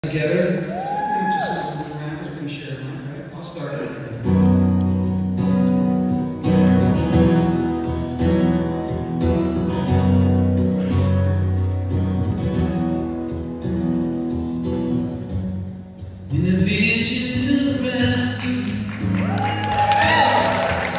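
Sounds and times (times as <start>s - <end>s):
acoustic guitar strumming chords: 4.2s - 19.2s.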